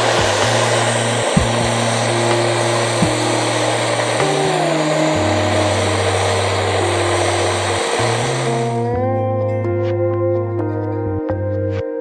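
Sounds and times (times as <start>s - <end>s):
gas stove hissing: 0.0s - 8.8s
ambient music with held tones: 0.0s - 12.0s.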